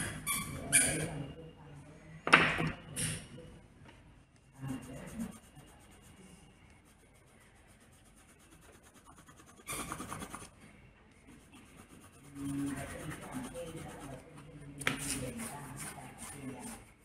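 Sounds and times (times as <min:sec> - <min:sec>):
paper pages rubbing on cloth: 0:06.8 - 0:10.5, 0:11.4 - 0:14.3.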